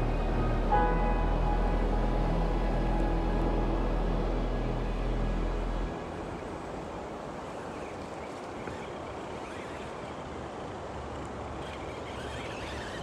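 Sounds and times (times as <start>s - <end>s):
faint whirr of toy motor: 8.6s - 13.0s.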